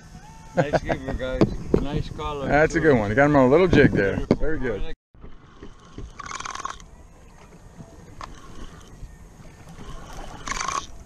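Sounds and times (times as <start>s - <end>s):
wind: 0.0s - 11.0s
water: 4.6s - 11.0s
fishing reel being cranked: 5.8s - 6.9s, 8.2s - 9.0s, 9.6s - 11.0s.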